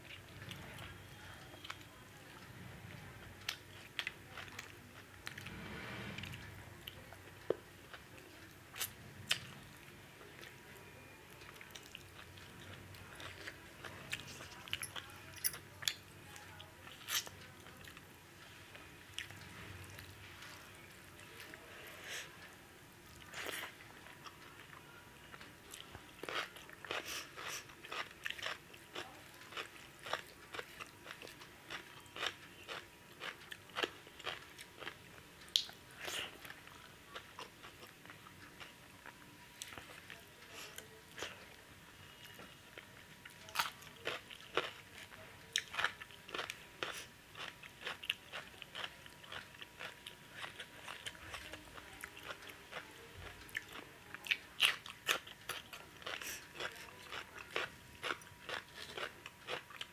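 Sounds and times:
person chewing and lip-smacking: 25.7s - 37.9s, 45.5s - 59.9s.

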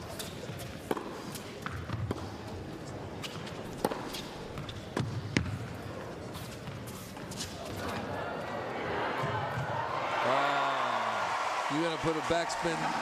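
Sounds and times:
tennis ball bouncing on court: 0.2s - 2.5s, 3.2s - 8.0s
tennis ball struck by rackets: 0.8s - 2.3s, 3.2s - 5.6s.

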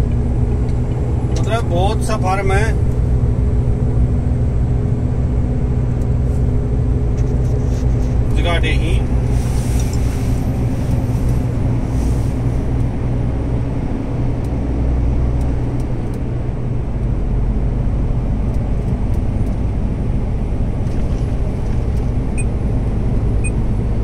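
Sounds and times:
truck engine and tyres droning: 0.0s - 24.0s.

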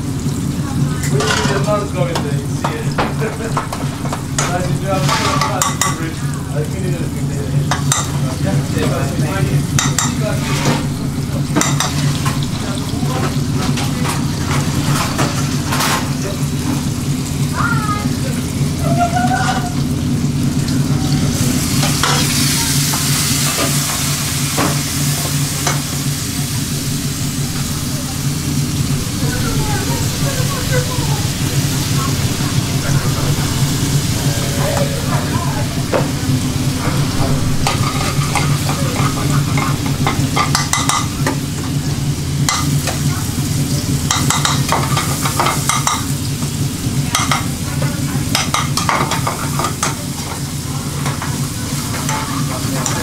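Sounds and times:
food sizzling in pans: 0.0s - 53.0s
low drone of range hood: 0.0s - 53.0s
spoon stirring and tapping pans: 1.0s - 6.2s, 7.6s - 9.0s, 9.7s - 12.6s, 37.0s - 41.8s, 42.4s - 43.1s, 44.0s - 53.0s.

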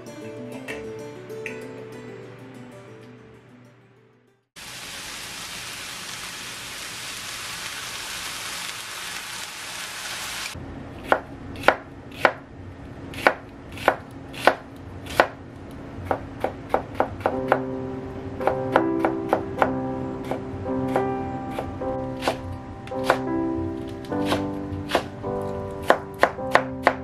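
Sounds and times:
steady hiss: 4.6s - 10.6s
knife chopping on cutting board: 13.2s - 15.4s, 18.4s - 23.3s, 24.1s - 25.2s
soft background music: 17.0s - 27.0s.

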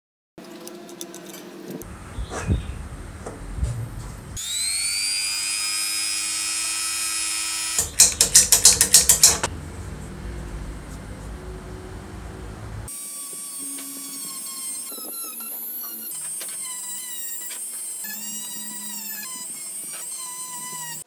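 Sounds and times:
rotary tool high whine: 4.4s - 9.5s, 12.0s - 21.0s.

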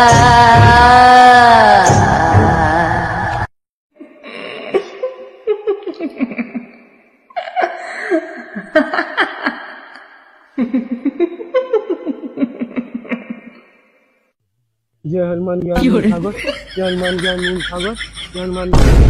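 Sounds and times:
woman laughing: 4.6s - 9.9s, 10.6s - 13.6s, 15.8s - 18.7s.

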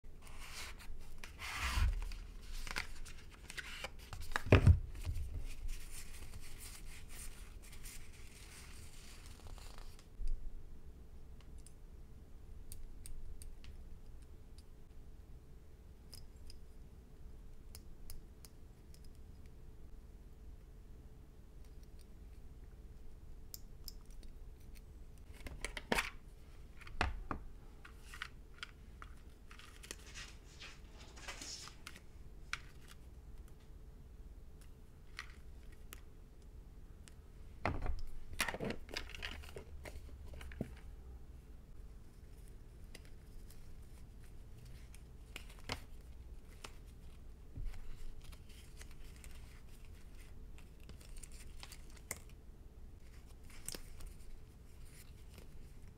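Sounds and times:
sticker sheets crinkling: 27.9s - 33.0s.

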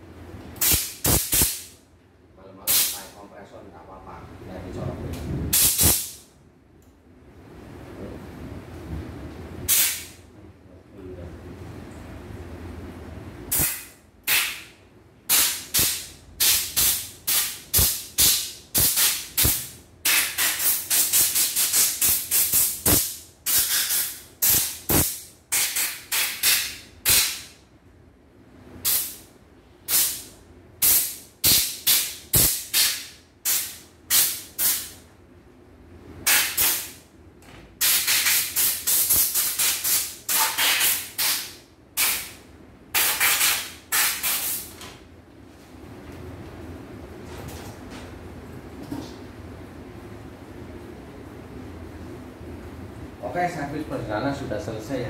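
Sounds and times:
compressed air blow gun blasts: 0.6s - 1.8s, 2.7s - 3.1s, 5.5s - 6.2s, 9.7s - 10.2s, 13.5s - 27.5s, 28.8s - 29.3s, 29.9s - 35.0s, 36.2s - 37.0s, 37.8s - 44.7s.

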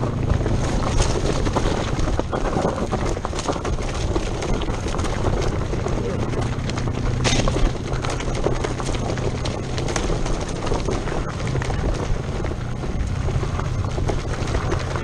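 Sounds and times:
bike rattling and knocking: 0.0s - 15.0s
tyre rolling noise: 0.0s - 15.0s.

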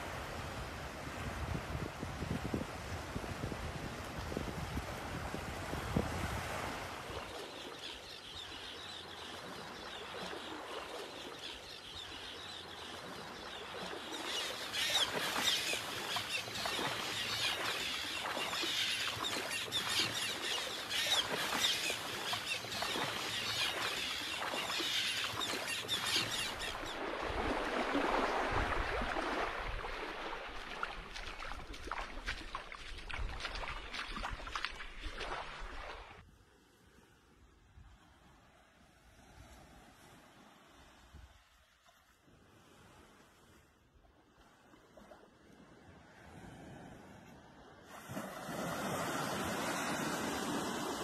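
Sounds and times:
small waves lapping on sand: 0.0s - 51.0s.

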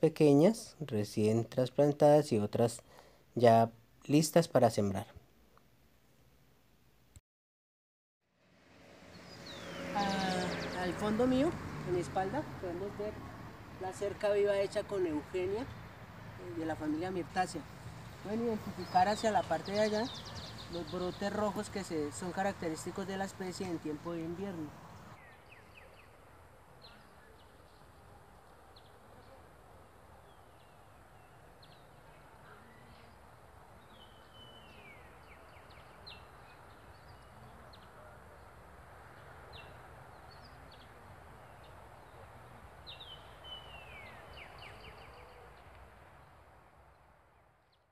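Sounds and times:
low steady background noise: 0.0s - 7.2s, 8.4s - 47.9s
bird chirps: 9.1s - 11.6s, 18.0s - 23.0s.

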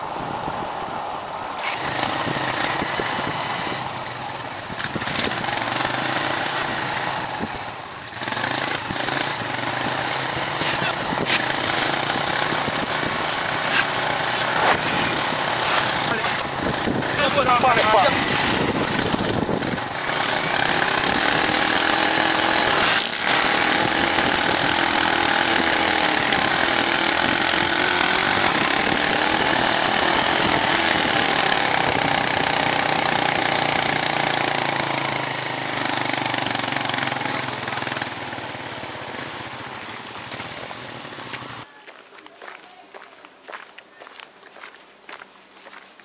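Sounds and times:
wind rushing over microphone: 0.0s - 32.6s
small motorcycle engine running: 1.6s - 41.7s.

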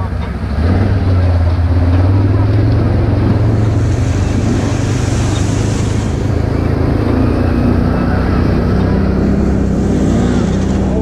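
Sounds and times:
tyres splashing through puddle: 0.0s - 11.0s
vehicle engine running: 0.0s - 11.0s.

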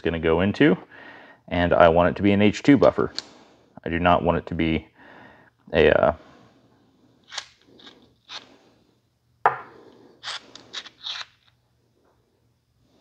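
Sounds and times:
metal parts scraping and rubbing: 7.2s - 8.5s, 10.2s - 11.6s.

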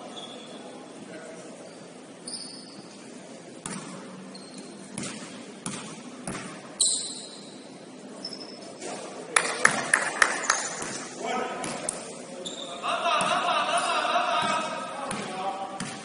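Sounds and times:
short high squeaks: 0.1s - 0.7s, 1.7s - 3.1s, 4.3s - 4.8s, 6.8s - 8.8s
basketball bouncing on gym floor: 3.6s - 4.2s, 4.9s - 6.7s, 14.4s - 16.0s.

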